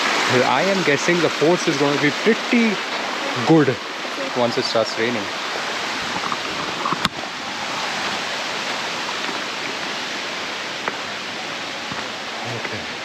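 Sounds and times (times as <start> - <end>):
stream water rushing: 0.0 - 13.0.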